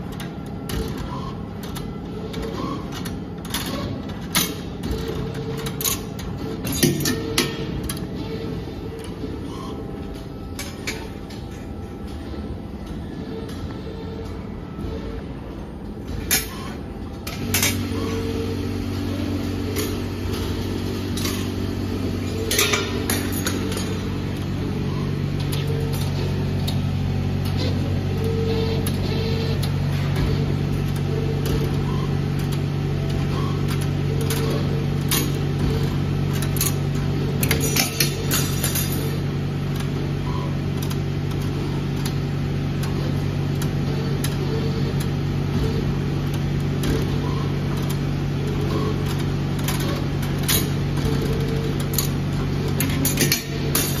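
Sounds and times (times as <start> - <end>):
machine motor hum: 0.0 - 54.0
higher hum tone: 7.0 - 36.2.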